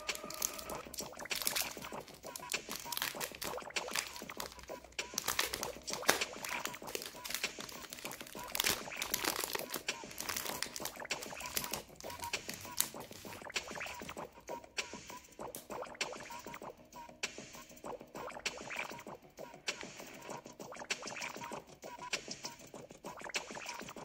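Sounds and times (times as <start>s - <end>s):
candy wrapper crinkling: 0.0s - 14.0s.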